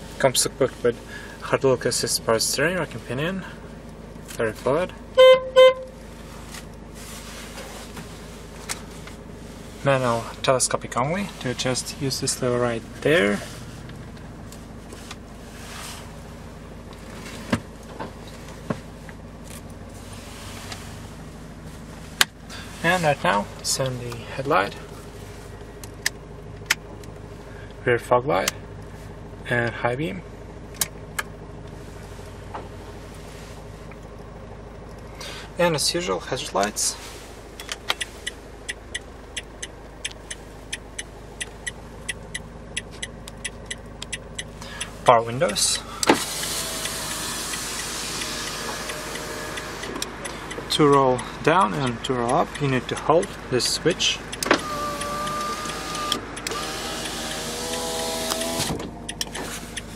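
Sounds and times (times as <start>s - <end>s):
diesel engine idling: 0.0s - 59.9s
steering lever clicks: 25.8s - 27.3s, 30.7s - 31.3s, 37.6s - 59.9s.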